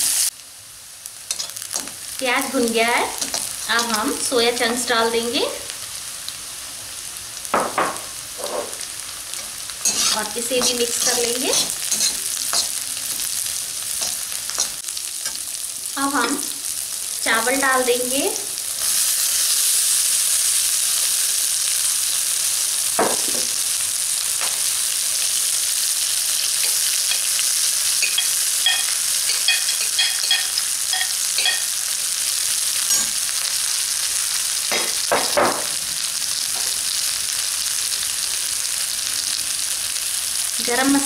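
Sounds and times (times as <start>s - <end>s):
oil sizzling in a pan: 0.0s - 41.0s
spoon clinking and scraping pan: 1.3s - 2.0s, 7.9s - 15.5s, 26.3s - 31.9s, 32.8s - 33.3s.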